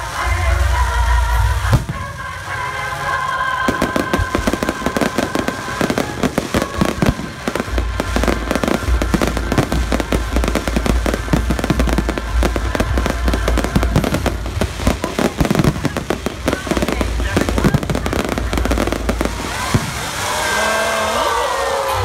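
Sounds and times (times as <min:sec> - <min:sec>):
faint music: 0:00.0 - 0:22.0
fireworks bangs and crackling: 0:00.0 - 0:22.0
deep rumble: 0:04.1 - 0:21.0.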